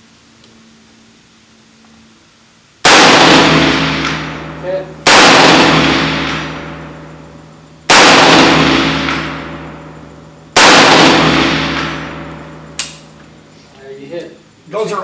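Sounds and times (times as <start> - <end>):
rifle shots with echo: 2.8 - 13.2.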